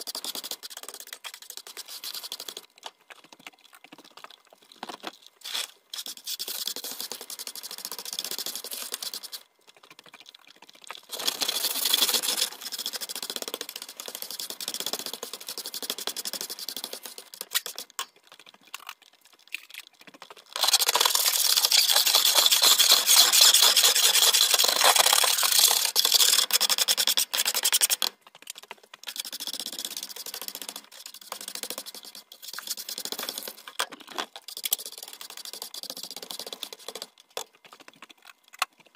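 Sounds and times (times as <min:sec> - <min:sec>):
broom scratching on hard floor: 0:20.6 - 0:26.4.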